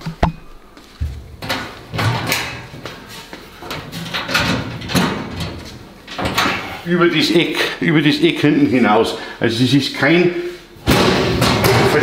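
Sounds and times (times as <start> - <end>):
metal cabinet doors rattling: 1.2 - 2.8, 3.6 - 6.8, 10.8 - 12.0.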